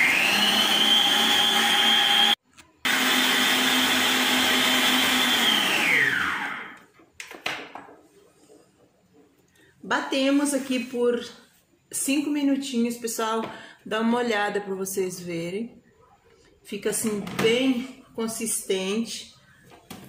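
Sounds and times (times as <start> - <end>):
stand mixer whining: 0.0 - 6.8.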